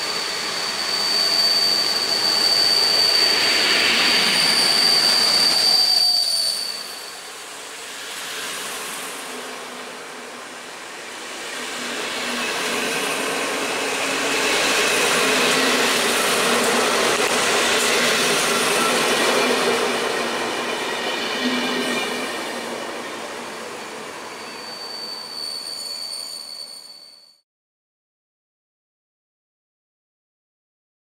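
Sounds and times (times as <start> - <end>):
wheels squealing: 0.1 - 7.3, 11.6 - 27.4.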